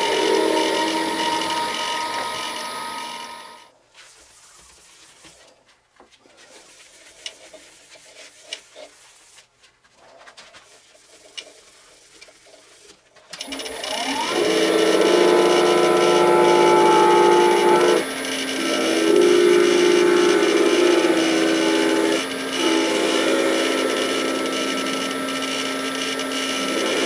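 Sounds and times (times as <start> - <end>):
wood lathe motor whine: 0.0 - 3.7, 13.4 - 27.0.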